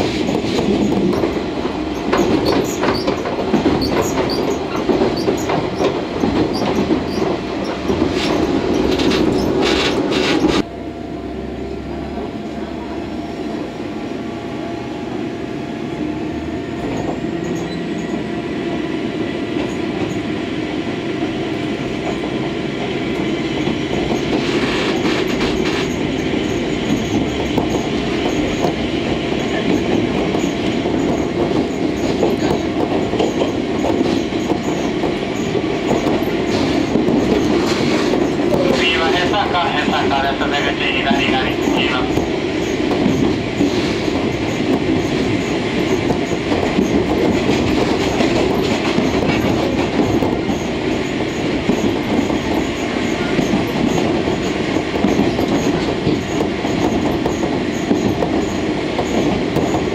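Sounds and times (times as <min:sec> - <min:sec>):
railcar rumble: 0:00.0 - 0:59.9
wheel clacks over rail joints: 0:00.1 - 0:10.6, 0:23.6 - 0:39.1, 0:40.8 - 0:59.9.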